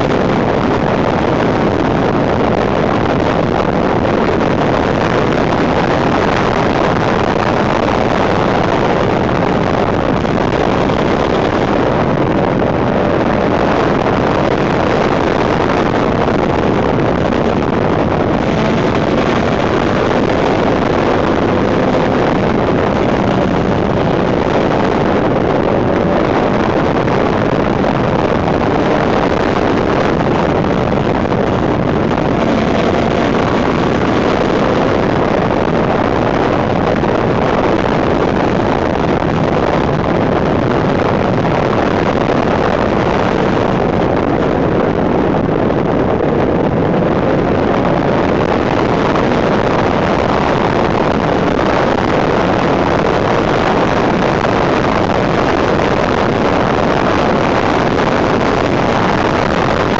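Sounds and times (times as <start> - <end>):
wind rushing over microphone: 0.0 - 59.9
motorcycle engine: 16.6 - 23.6, 30.3 - 35.5.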